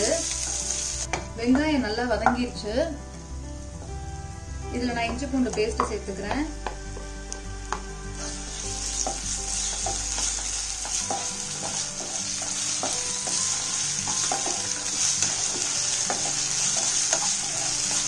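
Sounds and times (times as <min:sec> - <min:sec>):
vegetables sizzling in oil: 0:00.0 - 0:18.0
wooden spatula scraping a pan: 0:08.2 - 0:18.0.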